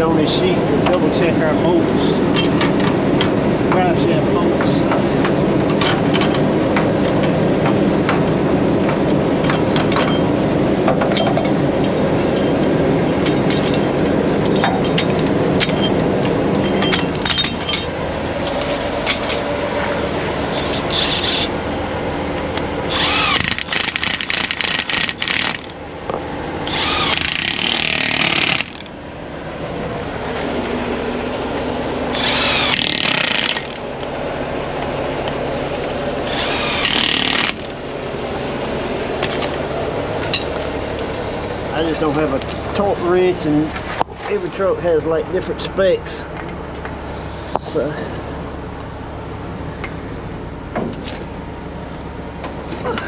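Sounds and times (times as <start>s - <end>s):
engine idling: 0.0s - 53.0s
impact wrench hammering: 22.9s - 25.8s, 26.6s - 28.9s, 32.1s - 33.8s, 36.3s - 37.7s.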